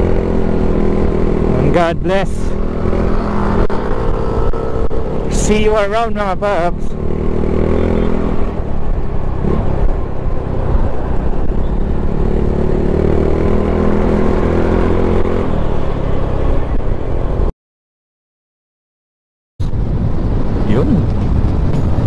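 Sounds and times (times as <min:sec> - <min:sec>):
wind rumble on microphone: 0:19.6 - 0:22.0.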